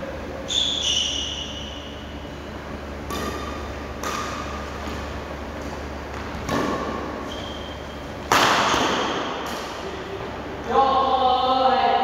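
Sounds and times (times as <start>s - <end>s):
racket hitting shuttlecock: 3.0s - 10.0s.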